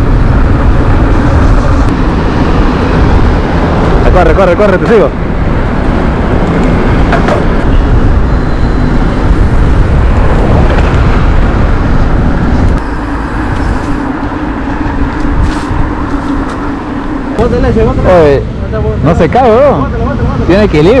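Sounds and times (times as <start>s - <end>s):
wind rushing over microphone: 0.0s - 21.0s
bike tyre noise: 4.8s - 18.0s.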